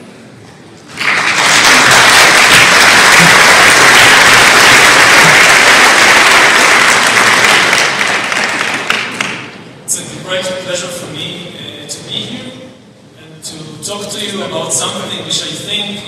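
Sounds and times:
large audience applauding: 0.9 - 9.5.

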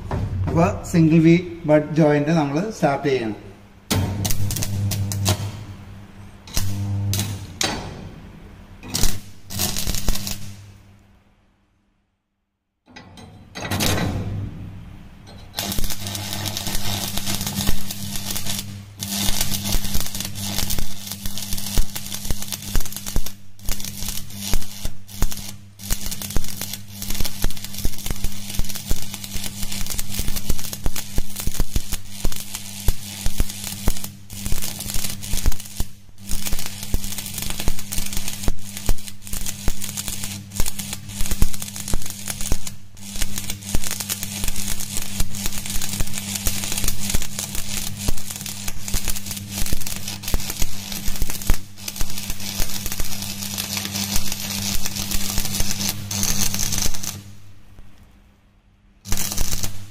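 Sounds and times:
steady low hum: 0.0 - 11.8
welding arc crackling: 3.9 - 7.8, 8.8 - 10.9, 15.3 - 58.0, 59.0 - 59.9.

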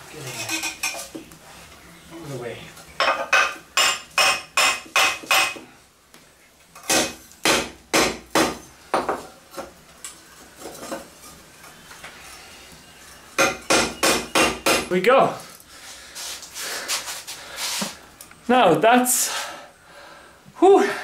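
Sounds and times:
hammer striking metal on anvil: 3.3 - 5.6.

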